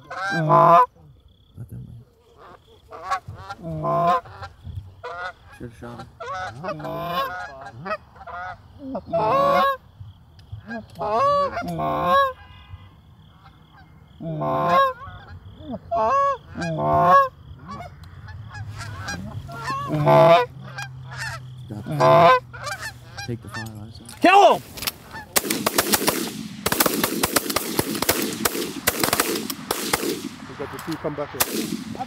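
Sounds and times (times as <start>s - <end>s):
goose honking and clucking: 0.0s - 1.0s, 2.2s - 9.9s, 10.6s - 25.9s.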